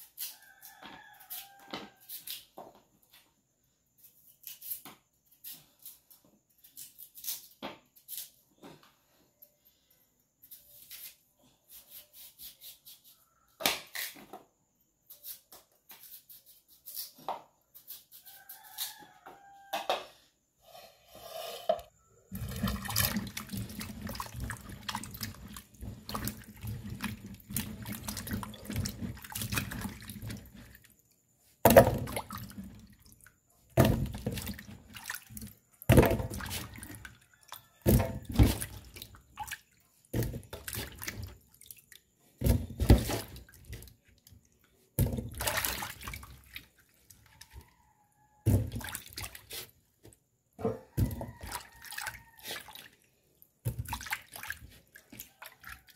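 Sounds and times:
water splashing in a bowl: 22.3 - 49.7, 50.9 - 55.9
wet pieces knocking into a pot: 31.6 - 32.7, 33.8 - 35.1, 35.9 - 36.8.

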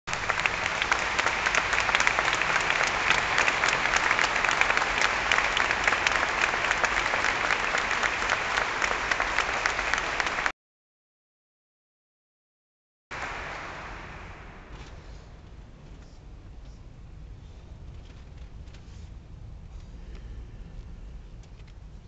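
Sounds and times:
audience applauding: 0.1 - 10.5, 13.1 - 14.7.

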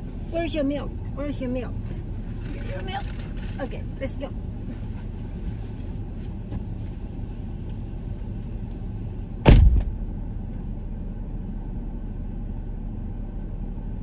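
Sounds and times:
car low rumble: 0.0 - 14.0
loud thump: 9.4 - 10.1.

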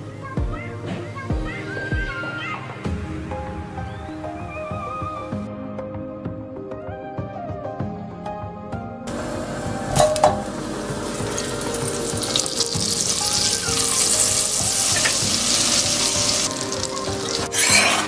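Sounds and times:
butter sizzling in a pan: 9.1 - 18.0.

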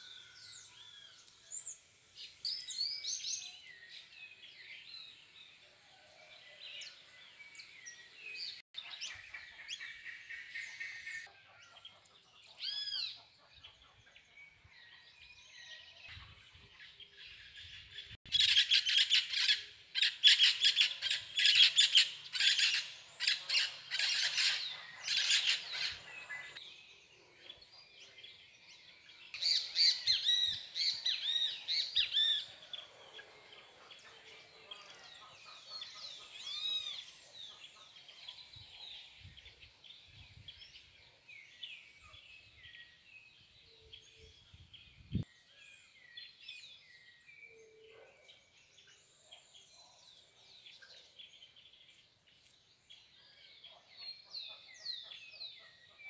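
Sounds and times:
birds calling: 18.2 - 26.9.

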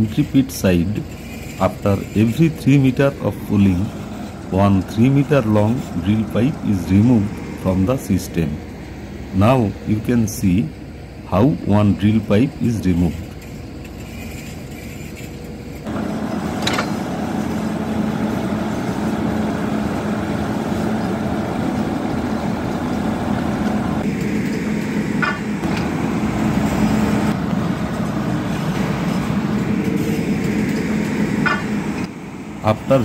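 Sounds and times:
drilling rig engine running: 0.0 - 33.0
sharp metallic knocks: 24.5 - 25.9, 31.4 - 31.8.

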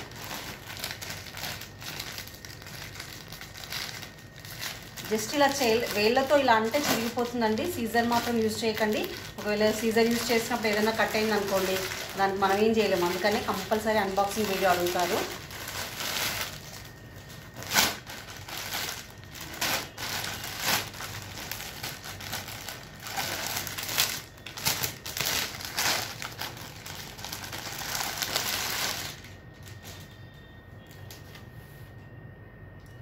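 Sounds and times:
plastic packaging crinkling: 0.0 - 31.5.

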